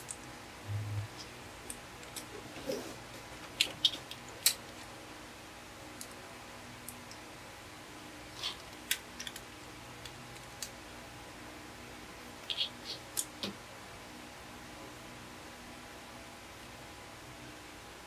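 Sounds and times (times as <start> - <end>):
faint steady hum: 0.0 - 18.0
plastic pieces clicking and knocking: 8.5 - 10.7.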